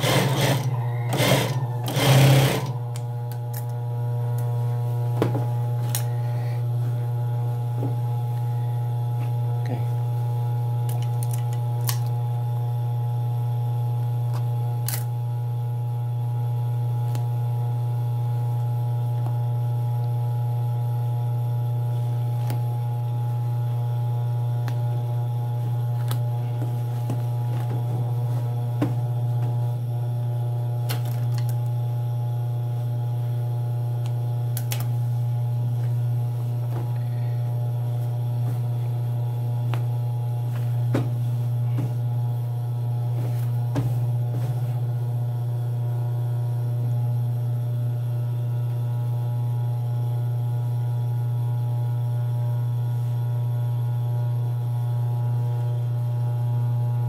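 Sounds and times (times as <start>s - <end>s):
low electrical hum: 0.0s - 57.0s.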